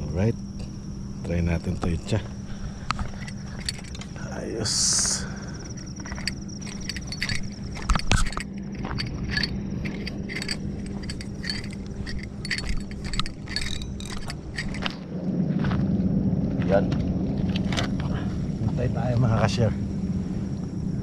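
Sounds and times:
steady low hum: 0:00.0 - 0:21.0
fishing reel clicks and rattles: 0:02.9 - 0:15.0.

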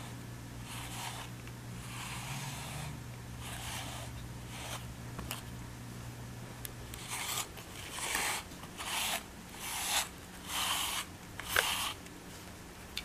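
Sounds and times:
brush rasping through fur: 0:00.6 - 0:04.9, 0:07.0 - 0:12.0.

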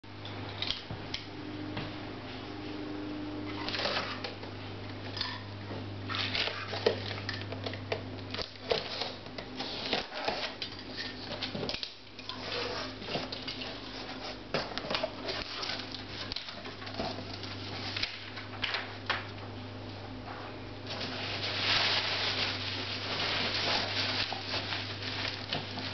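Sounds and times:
low background hum: 0:00.0 - 0:25.9
plastic and bubble wrap crinkling: 0:06.1 - 0:19.3, 0:20.8 - 0:25.9.

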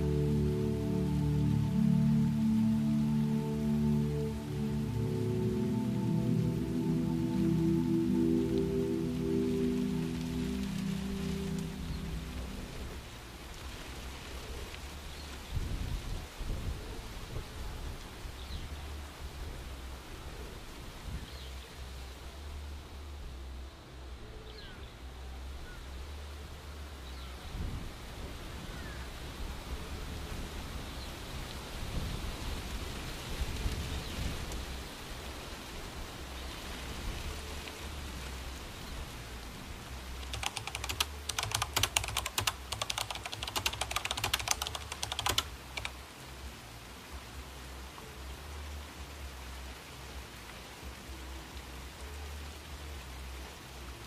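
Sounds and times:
soft rushing noise: 0:00.0 - 0:16.5
faint bird chirp: 0:24.2 - 0:26.0
rapid clatter of sharp clicks: 0:40.3 - 0:45.9.

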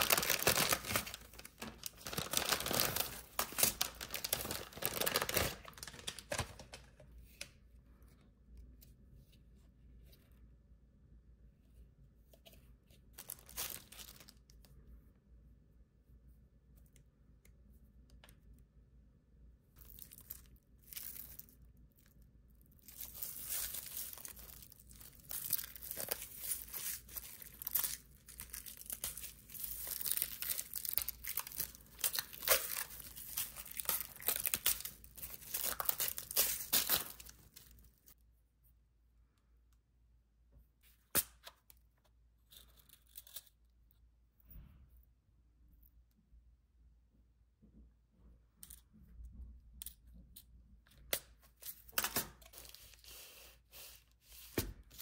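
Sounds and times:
plastic packaging crinkling: 0:00.0 - 0:06.9, 0:13.2 - 0:14.4, 0:22.8 - 0:38.2.

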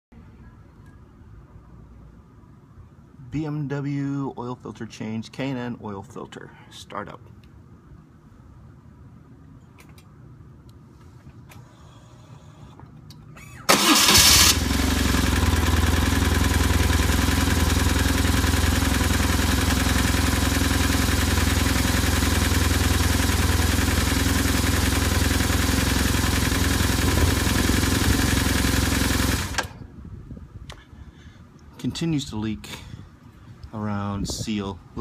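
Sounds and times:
motorcycle engine starting and idling: 0:13.7 - 0:29.9.

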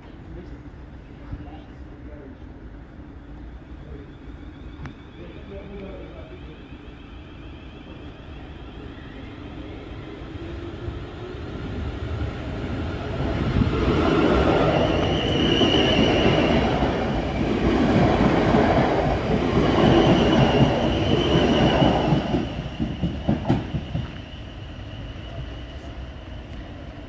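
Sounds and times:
high steady train tone: 0:00.0 - 0:27.0
electric train passing: 0:01.8 - 0:27.0
train wheel clatter: 0:13.6 - 0:24.5.

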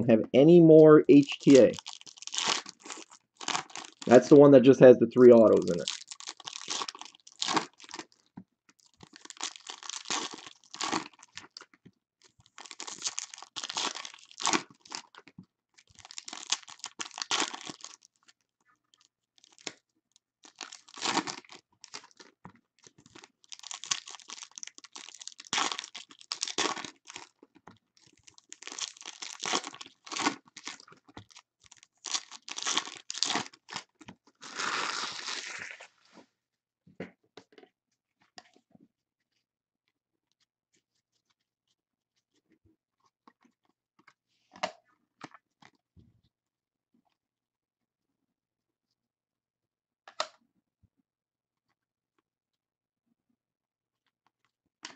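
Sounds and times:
card pack wrappers tearing and crinkling: 0:01.2 - 0:04.3, 0:05.4 - 0:08.1, 0:09.0 - 0:11.5, 0:12.5 - 0:15.2, 0:15.9 - 0:18.0, 0:20.5 - 0:22.3, 0:23.1 - 0:27.3, 0:28.3 - 0:35.9.

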